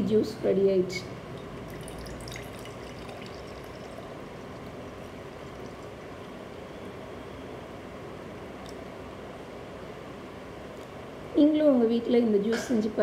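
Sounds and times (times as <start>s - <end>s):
steady background hiss: 0.0s - 13.0s
juice pouring into glass: 1.4s - 6.5s.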